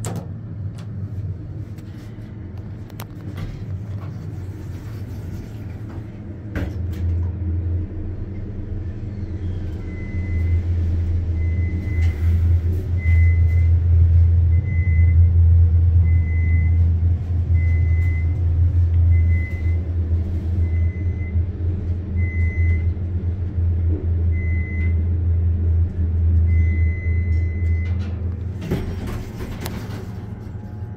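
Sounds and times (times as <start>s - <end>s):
elevator car clunk: 0.0s - 1.0s, 26.9s - 30.9s
elevator motor hum: 0.0s - 30.9s.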